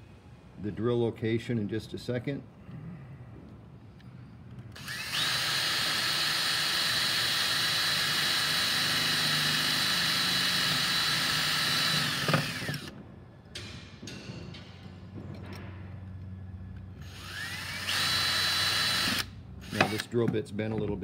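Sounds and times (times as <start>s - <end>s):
cordless drill whining: 4.7s - 12.9s, 17.0s - 20.1s.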